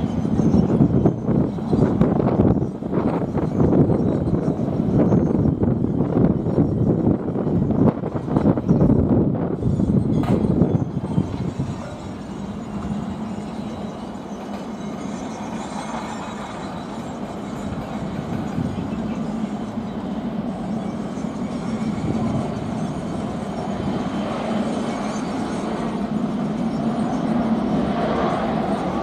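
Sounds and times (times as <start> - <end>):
distant jet engines rumbling: 0.0 - 29.0.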